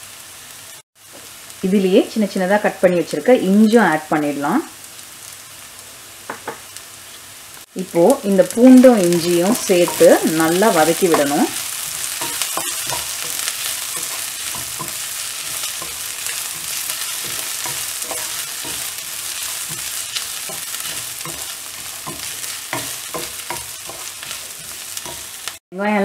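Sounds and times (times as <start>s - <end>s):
food sizzling in hot oil: 0.0s - 25.6s
wooden spoon scraping pan: 9.2s - 25.6s.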